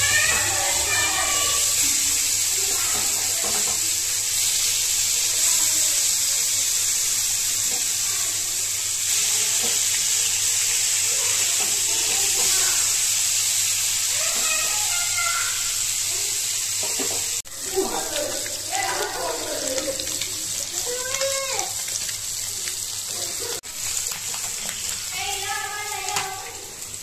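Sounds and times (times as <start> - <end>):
fish frying in hot oil: 0.0 - 27.0.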